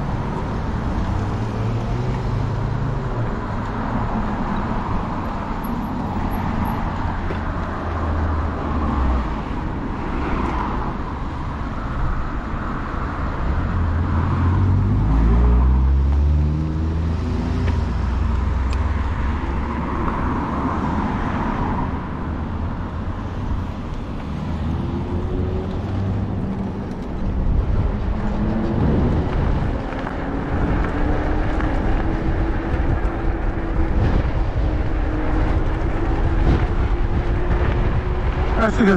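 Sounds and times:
low rumble and road noise: 0.0 - 38.9.

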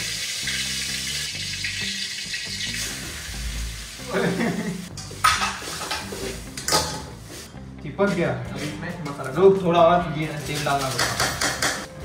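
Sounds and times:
noodles sizzling in hot oil: 0.0 - 7.4.

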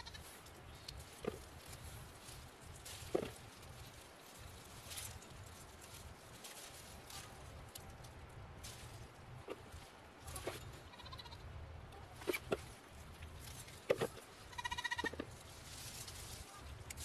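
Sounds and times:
goat bleating: 0.0 - 0.2, 10.3 - 11.4, 14.5 - 15.2.

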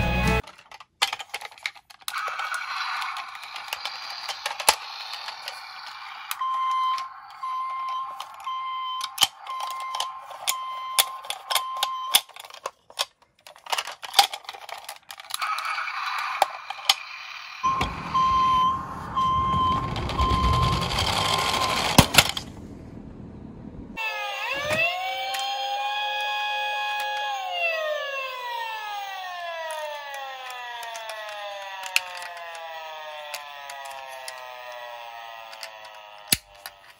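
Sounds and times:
plastic clicks: 0.4 - 17.1, 28.3 - 36.9
toy electronic beeps: 2.1 - 12.6, 15.4 - 22.0
low rumble: 17.7 - 24.0.

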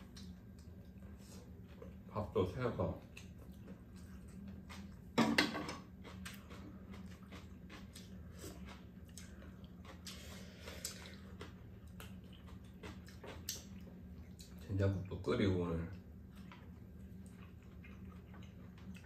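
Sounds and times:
eating noises: 0.0 - 5.2, 5.8 - 15.2, 15.8 - 19.0
steady low hum: 0.0 - 19.0.

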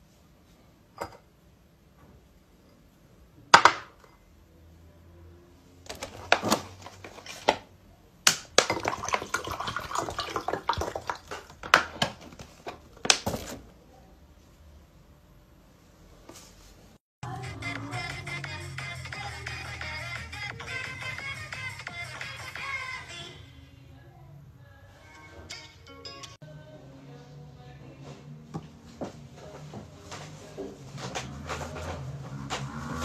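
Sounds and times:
liquid pouring into a glass: 8.7 - 11.4.

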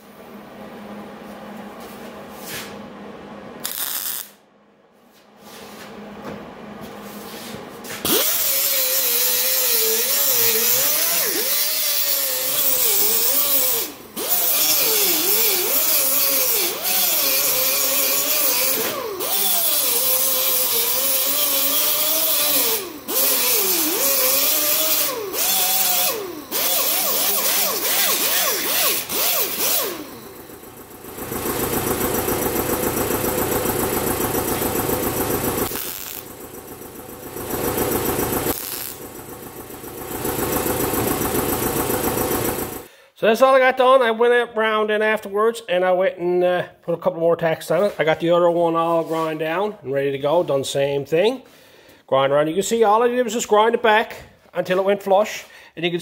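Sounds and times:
angle grinder grinding metal: 8.0 - 30.2, 35.6 - 36.3, 38.5 - 39.0.

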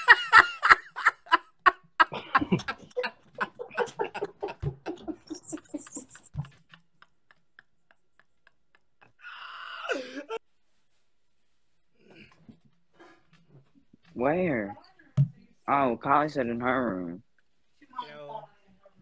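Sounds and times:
man laughing hard: 0.0 - 10.4.

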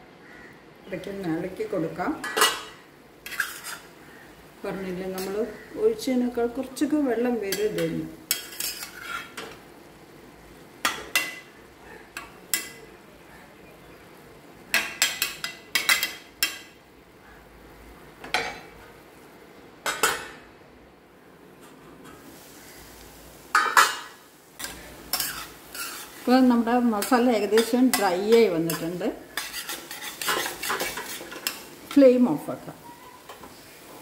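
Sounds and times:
faint sizzle: 0.0 - 34.0
spatula scraping steel pan: 3.2 - 3.9, 7.5 - 9.4, 24.6 - 26.3, 27.0 - 31.7.

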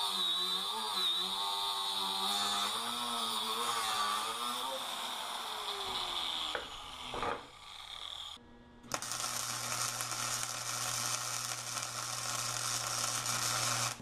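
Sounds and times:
angle grinder whine: 0.0 - 14.0
welding arc crackling and hissing: 8.9 - 14.0.

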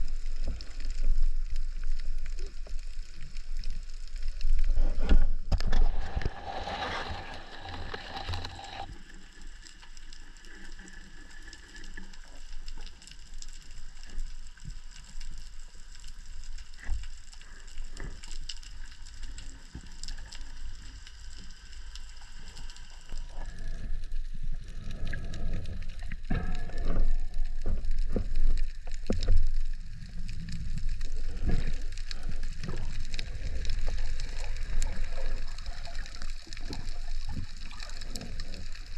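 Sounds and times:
sharp underwater clicks and crackles: 0.0 - 38.9
underwater rumble of water: 0.0 - 38.9
rush of water: 5.6 - 9.1.

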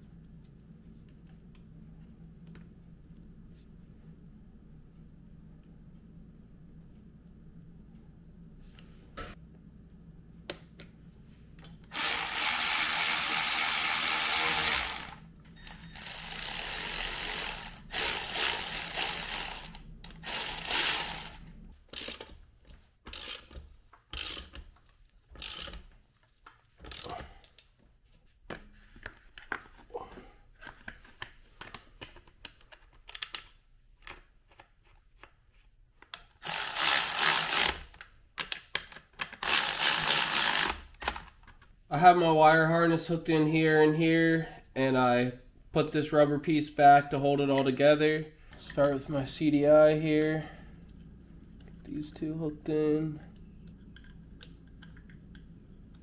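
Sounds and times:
ratchet wrench clicking: 11.9 - 22.3, 23.1 - 24.7, 25.4 - 25.9, 26.8 - 27.1, 36.4 - 37.8, 39.4 - 40.8.

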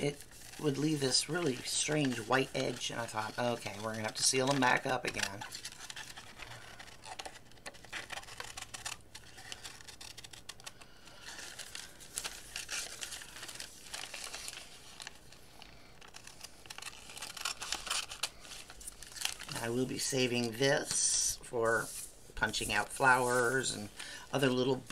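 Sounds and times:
wax paper crinkling: 0.0 - 24.9.

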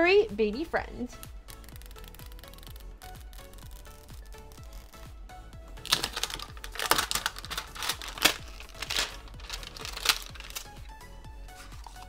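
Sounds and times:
plastic shrink wrap crinkling: 5.8 - 10.8.

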